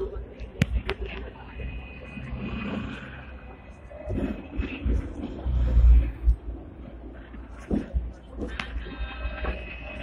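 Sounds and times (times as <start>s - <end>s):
tram rumbling along street: 0.0s - 10.0s.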